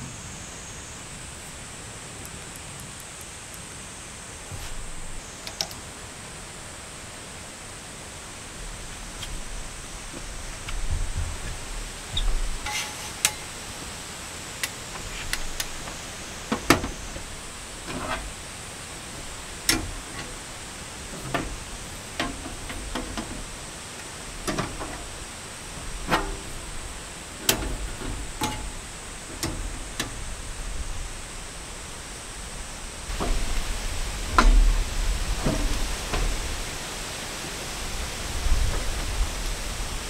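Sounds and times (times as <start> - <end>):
wind and rain hiss: 0.0 - 40.0
metal panels clicking and knocking: 12.1 - 13.9, 14.6 - 18.4, 19.0 - 30.4.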